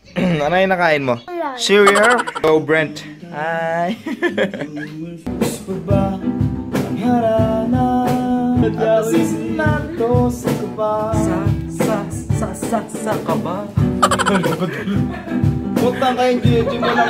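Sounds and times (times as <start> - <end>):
man singing: 1.8 - 2.4, 4.8 - 15.0, 15.8 - 16.8.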